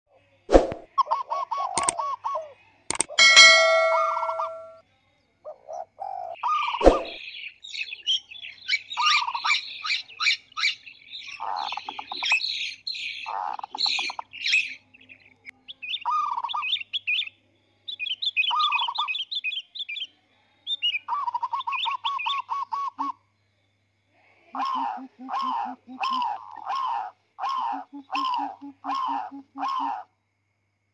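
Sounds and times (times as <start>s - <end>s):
birds chirping: 1.6s - 4.8s, 5.6s - 23.1s, 24.6s - 30.0s
fast bird trill: 3.2s - 4.8s, 6.4s - 7.2s
ringing ding: 3.2s - 4.8s.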